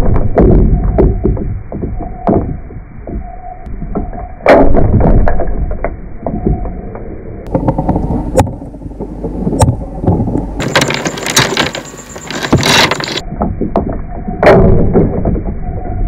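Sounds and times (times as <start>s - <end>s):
low rumble: 0.0s - 16.0s
claws clicking on coral and glass: 10.3s - 13.2s.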